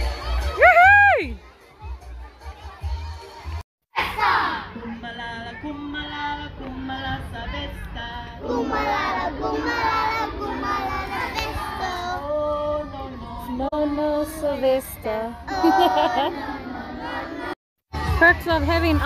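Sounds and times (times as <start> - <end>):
children singing together: 8.4 - 14.4, 15.4 - 18.1.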